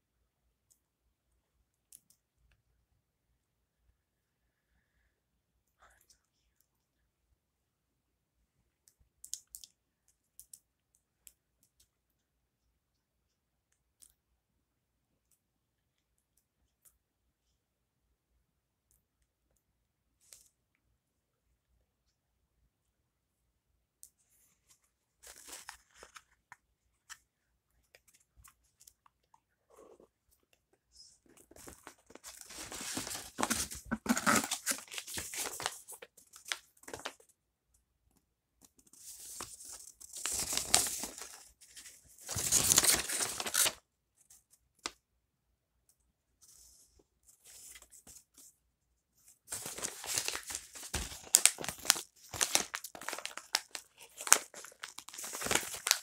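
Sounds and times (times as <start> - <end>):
paper rustling: 24.4 - 27.2, 31.0 - 37.2, 38.8 - 43.8, 49.4 - 56.0
padded mailer tearing and crinkling: 31.9 - 37.1, 42.2 - 43.8, 49.5 - 56.0.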